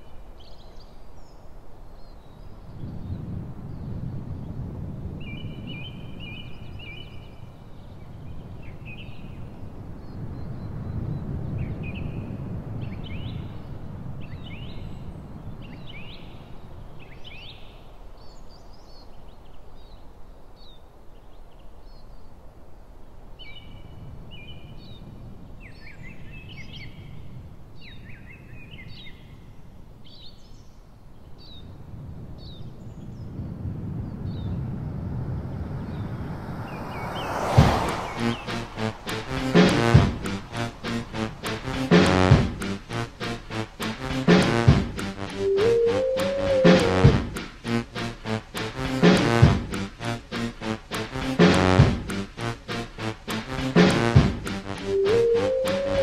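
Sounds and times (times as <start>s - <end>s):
songbirds chirping and trilling: 5.2s - 22.5s
low outdoor rumble: 37.6s - 56.0s.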